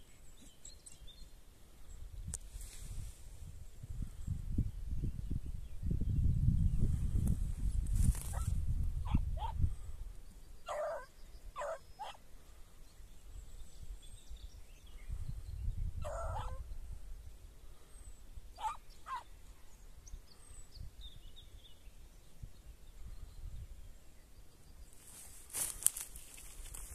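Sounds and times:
wind on microphone: 0:01.9 - 0:10.2, 0:13.4 - 0:19.3
dog barking: 0:09.1 - 0:09.6, 0:10.7 - 0:12.2, 0:16.0 - 0:16.6, 0:18.6 - 0:19.2
faint bird chirps: 0:10.2 - 0:16.9.

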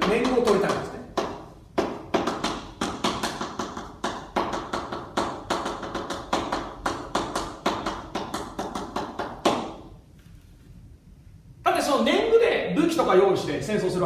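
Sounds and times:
chalk tapping and scratching on blackboard: 0:00.0 - 0:09.8.

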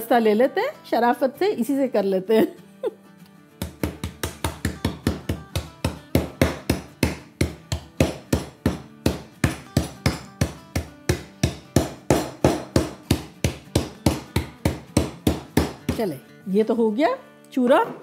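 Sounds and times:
pestle pounding brittle in plastic bag: 0:03.6 - 0:16.2.

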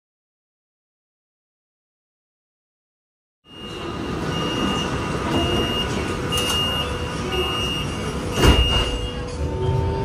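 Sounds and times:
train rumble: 0:03.5 - 0:10.0
train doors thumping shut: 0:07.8 - 0:09.5.

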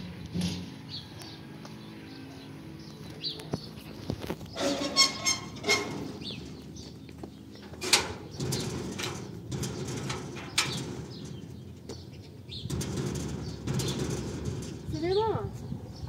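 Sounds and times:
metal gate knocking and rattling: 0:04.5 - 0:15.9.

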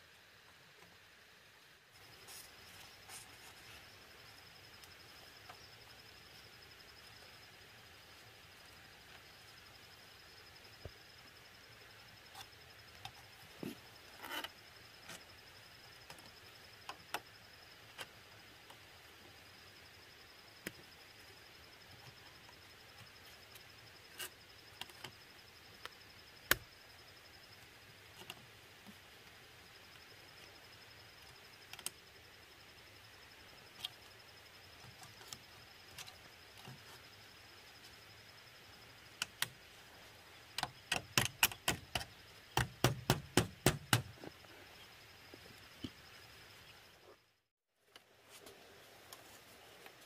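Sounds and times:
pliers and wire clicking: 0:40.6 - 0:43.2.

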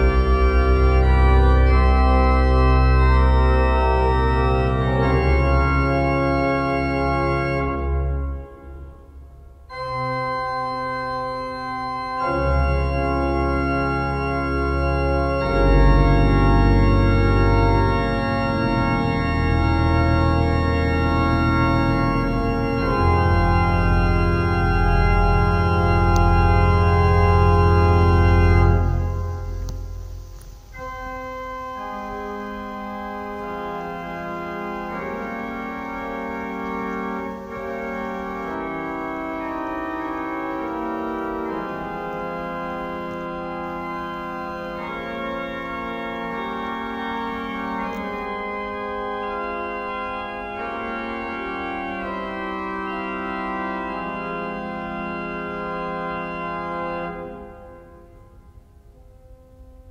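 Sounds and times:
slow sustained chords music: 0:00.0 - 0:59.9
deep held bass notes: 0:14.9 - 0:38.7.

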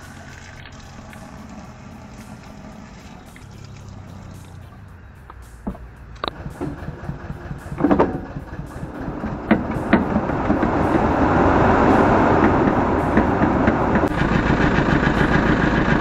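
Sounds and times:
sprayer rushing noise: 0:00.0 - 0:04.8
tractor engine running: 0:00.0 - 0:16.0
sharp clunks: 0:04.4 - 0:11.2.

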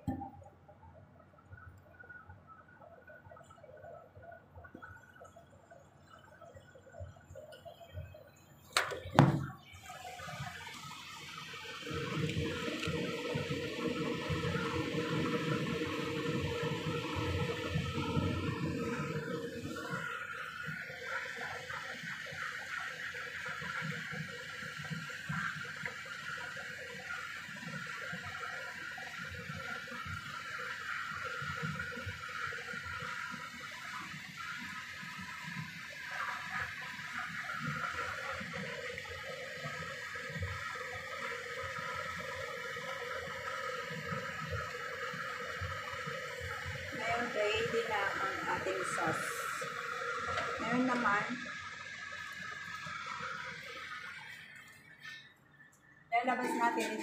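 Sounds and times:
sauce simmering and bubbling: 0:00.0 - 0:56.0.

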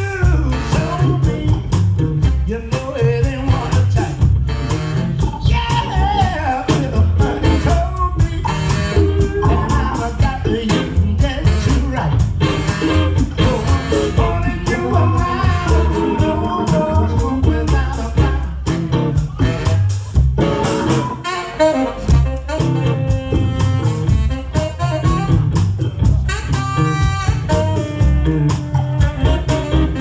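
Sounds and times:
man singing: 0:00.0 - 0:04.3, 0:05.3 - 0:12.4, 0:13.1 - 0:18.7
soul band playing: 0:00.0 - 0:30.0.

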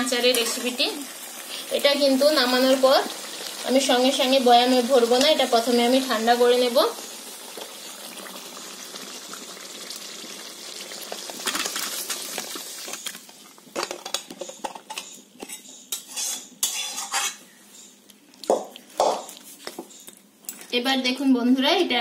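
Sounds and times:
hot food hissing: 0:00.0 - 0:13.2
spatula scraping metal plate: 0:14.9 - 0:17.4.

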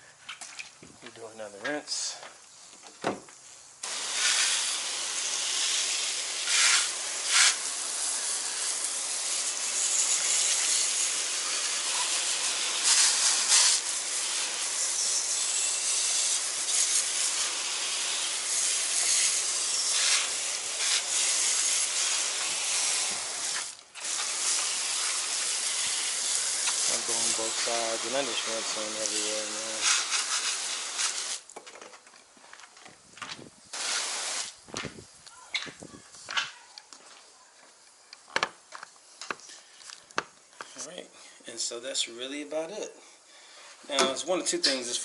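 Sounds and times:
hose nozzle spraying water: 0:03.8 - 0:31.5, 0:33.7 - 0:35.0.

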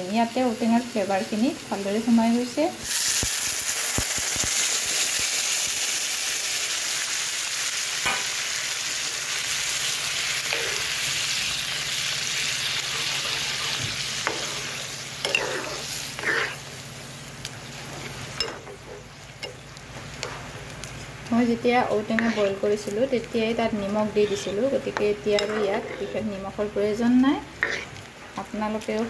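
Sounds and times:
water sizzling in hot pan: 0:00.0 - 0:29.0
spatula scraping pan: 0:12.7 - 0:16.7, 0:21.8 - 0:22.9, 0:23.9 - 0:26.4, 0:27.5 - 0:28.0.

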